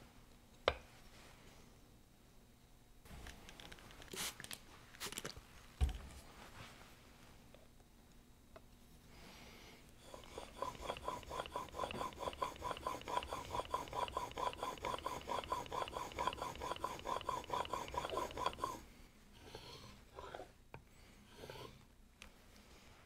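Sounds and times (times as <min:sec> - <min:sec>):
blade scraping on whetstone: 0:10.0 - 0:18.8, 0:21.3 - 0:21.8.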